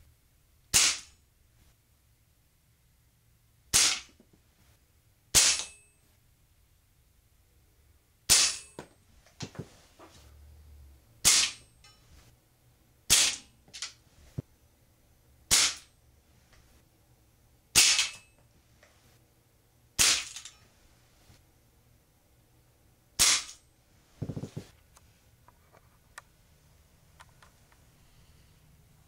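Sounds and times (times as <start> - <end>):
air pistol shots cracking: 0.7 - 1.2, 3.7 - 4.2, 5.3 - 5.8, 8.3 - 8.7, 11.2 - 11.6, 13.1 - 13.5, 15.5 - 15.9, 17.8 - 18.2, 20.0 - 20.4, 23.2 - 23.6.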